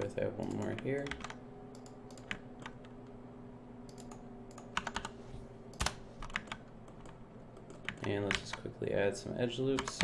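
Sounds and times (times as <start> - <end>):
faint electrical hum: 0.0 - 10.0
computer keyboard keystrokes: 0.4 - 2.8, 3.9 - 5.1, 5.7 - 8.6, 9.7 - 10.0.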